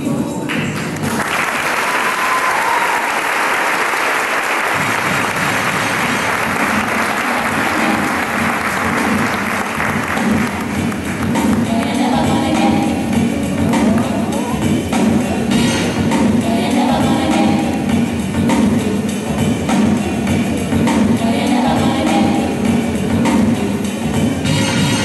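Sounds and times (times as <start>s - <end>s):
background music: 0.0s - 2.0s, 4.8s - 25.0s
audience applauding: 0.5s - 12.0s.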